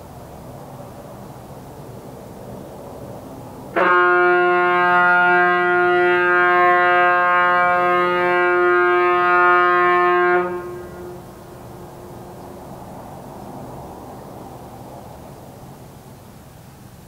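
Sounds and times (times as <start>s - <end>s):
ship's whistle long blast: 3.7s - 11.7s.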